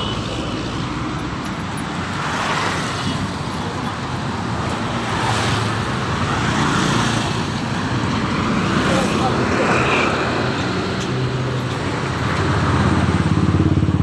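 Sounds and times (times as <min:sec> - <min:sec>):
road traffic noise: 0:00.0 - 0:14.0
motorbike passing: 0:05.0 - 0:14.0.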